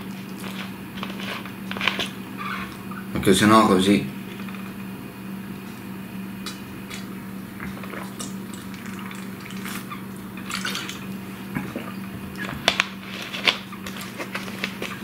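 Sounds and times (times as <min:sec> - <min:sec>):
man gulping water: 0:06.4 - 0:12.7.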